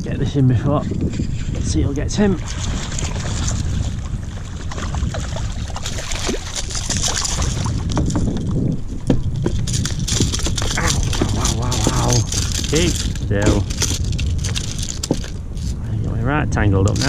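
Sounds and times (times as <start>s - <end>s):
wind buffeting microphone: 0.0s - 17.0s
water splashing: 2.2s - 8.3s, 10.3s - 15.7s.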